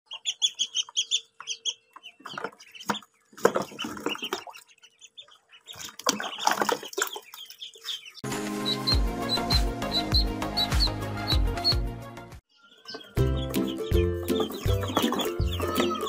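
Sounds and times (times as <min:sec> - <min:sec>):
ducklings peeping: 0:00.1 - 0:11.9, 0:12.5 - 0:16.0
water splashing: 0:03.3 - 0:04.9, 0:05.6 - 0:08.2.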